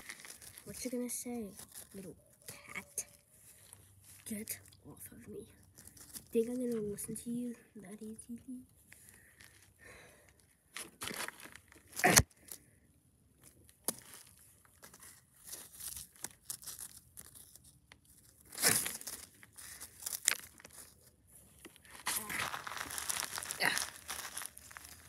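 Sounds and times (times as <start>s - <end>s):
toys crunching over gravel: 0.0s - 2.2s, 10.3s - 12.6s, 13.9s - 25.0s.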